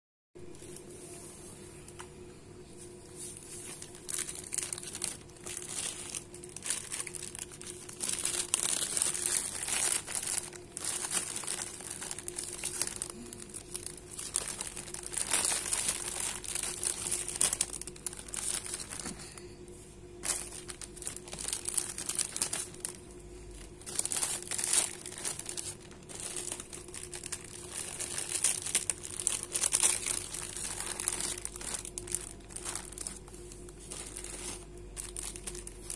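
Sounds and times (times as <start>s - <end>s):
plastic bags crinkling: 3.2s - 35.9s.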